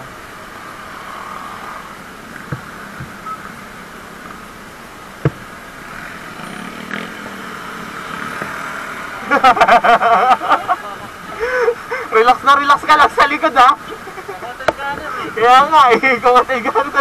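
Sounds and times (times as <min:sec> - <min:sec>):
road noise: 0:00.0 - 0:17.0
motorcycle engine running: 0:01.8 - 0:10.0
knocks: 0:05.2 - 0:05.4.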